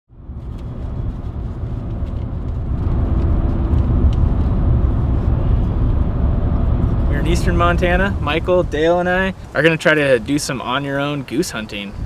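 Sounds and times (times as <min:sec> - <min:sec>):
road and engine rumble in cab: 0:00.1 - 0:12.0.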